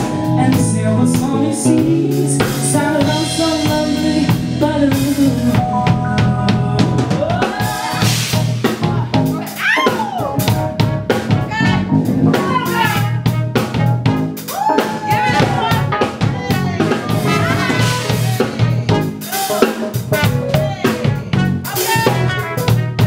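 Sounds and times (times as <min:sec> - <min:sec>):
gliding lead melody: 0:00.0 - 0:09.6
drum kit beat: 0:00.0 - 0:23.0
electric bass: 0:00.0 - 0:23.0.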